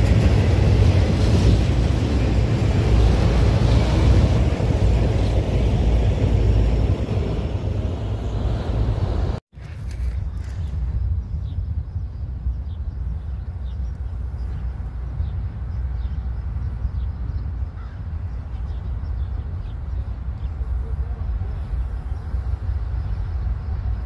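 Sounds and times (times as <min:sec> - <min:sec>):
wind buffeting microphone: 0:00.0 - 0:24.0.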